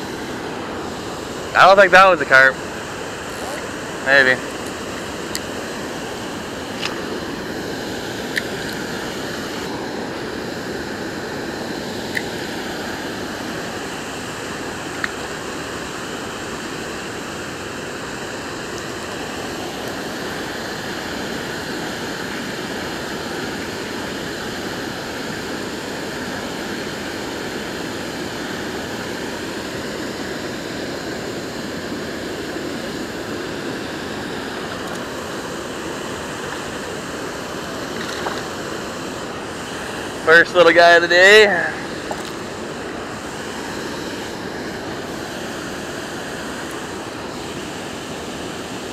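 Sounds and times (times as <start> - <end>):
water rushing over a spillway: 0.0 - 48.9.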